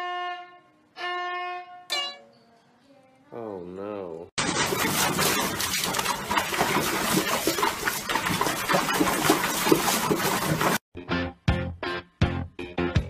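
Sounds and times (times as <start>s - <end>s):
water splashing and churning: 4.4s - 10.8s.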